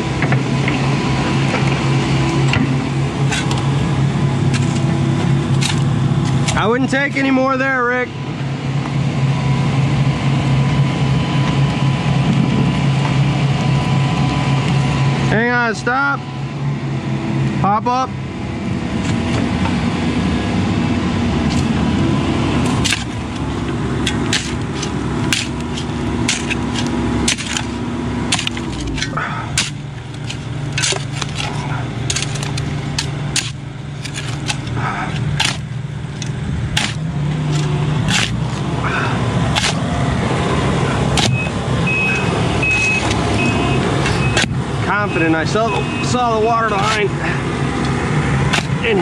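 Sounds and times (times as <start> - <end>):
excavator engine running: 0.0 - 49.0
pick striking dirt and stones: 1.5 - 3.8, 4.4 - 7.3, 21.4 - 44.6, 45.4 - 49.0.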